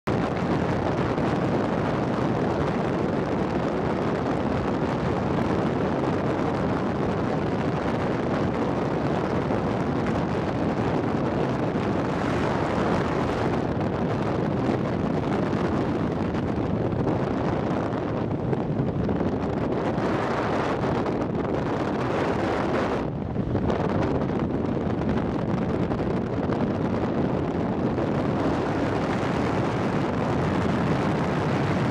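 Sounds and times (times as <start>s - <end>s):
wind buffeting microphone: 0.0s - 31.9s.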